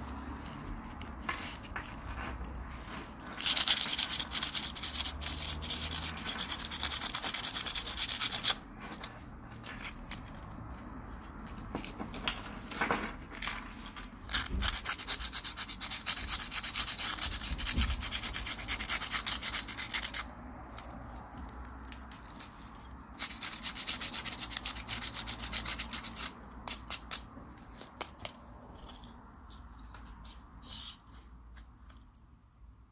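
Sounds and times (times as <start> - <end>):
sandpaper rasping on metal: 3.5 - 8.6, 14.3 - 20.3, 23.2 - 27.1.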